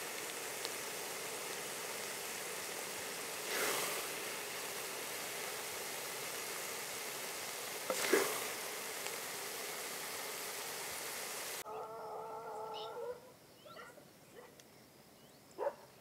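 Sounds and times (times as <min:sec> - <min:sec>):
steady hiss: 0:00.0 - 0:11.7, 0:12.7 - 0:16.0.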